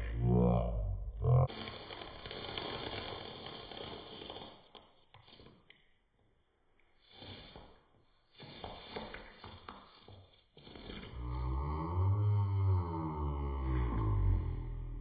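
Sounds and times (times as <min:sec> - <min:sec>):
person breathing through nose: 0:07.0 - 0:15.0.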